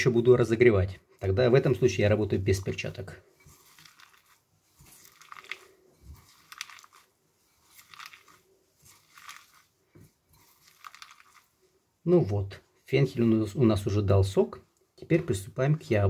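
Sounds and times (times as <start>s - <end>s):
faint crunching squeezes of vegetable: 3.5s - 11.6s.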